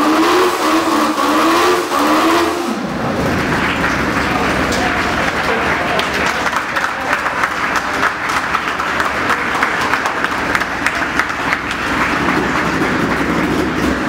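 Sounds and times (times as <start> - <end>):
small group applauding: 3.0 - 14.0.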